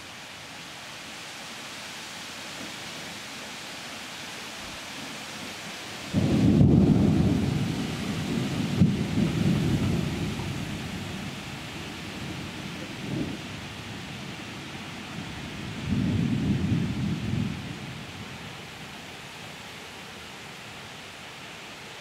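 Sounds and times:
rain hissing: 0.0 - 22.0
thunder rumbling: 6.1 - 14.1, 15.6 - 18.1.

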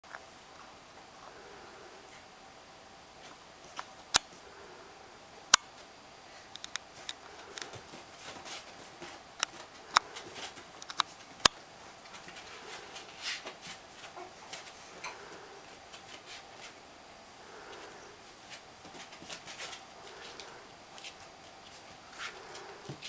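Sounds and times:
soft scuffling: 7.0 - 23.0.

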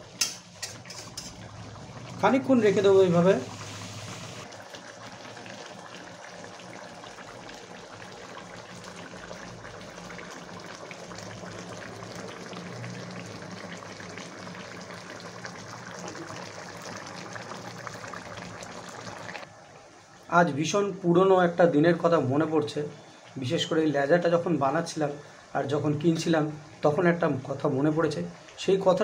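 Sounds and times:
curry bubbling and popping: 0.0 - 20.3.

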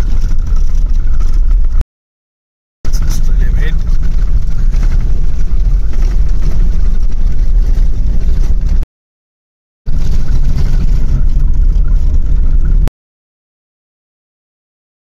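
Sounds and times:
vehicle rumbling on dirt road: 0.0 - 1.8, 2.8 - 8.9, 9.9 - 12.9.

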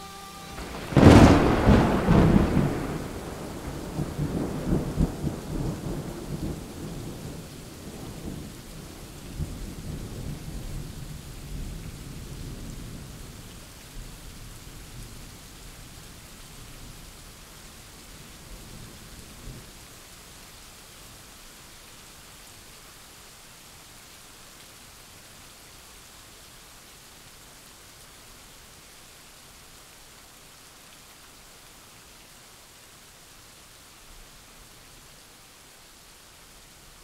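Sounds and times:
steady rain hiss: 0.0 - 37.0
thunder rolling and rumbling: 0.6 - 8.6.

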